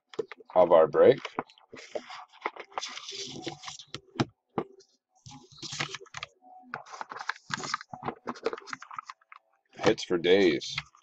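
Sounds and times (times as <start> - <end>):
cards rustling: 1.1 - 3.9, 5.3 - 10.0.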